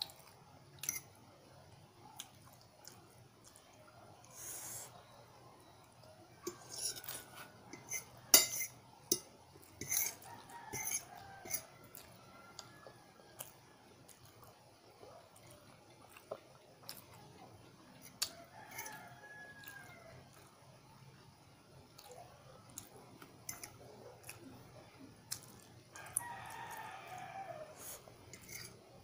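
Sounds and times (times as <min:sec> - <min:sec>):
rooster crowing: 0:06.4 - 0:07.6, 0:10.0 - 0:13.6, 0:18.3 - 0:20.3, 0:25.9 - 0:28.6.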